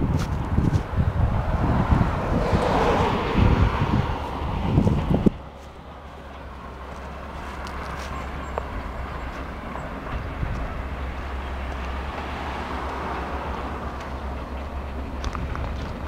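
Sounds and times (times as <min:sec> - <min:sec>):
car approaching: 0:00.0 - 0:16.0.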